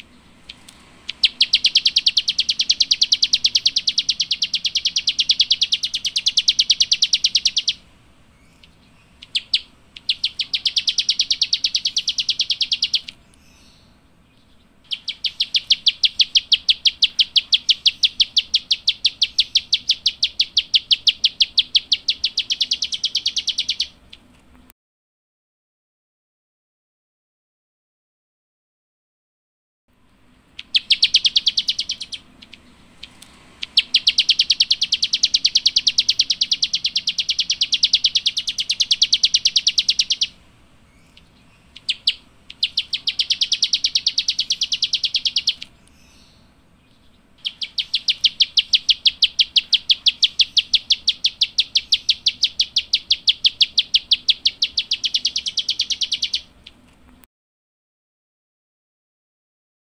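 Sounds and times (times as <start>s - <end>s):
bird rapid sharp clicking calls: 0.5s - 7.8s, 8.6s - 13.5s, 14.8s - 24.3s, 30.6s - 40.4s, 41.0s - 46.0s, 47.4s - 57.2s.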